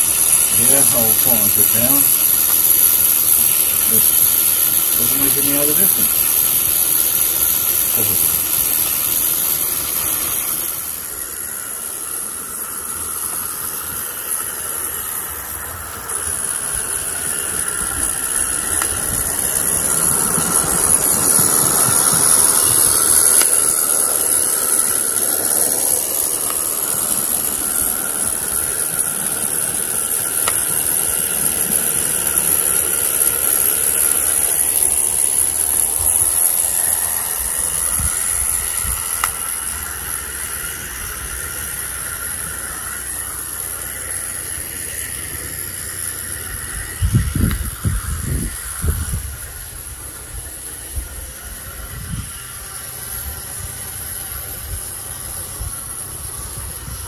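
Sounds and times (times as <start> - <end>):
steam and gas burner hissing: 0.0 - 57.0.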